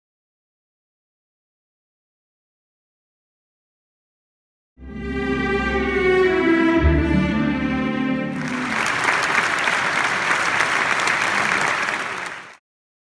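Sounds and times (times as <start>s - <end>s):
orchestra sustained chord: 4.8s - 9.2s
audience applause: 8.3s - 12.6s.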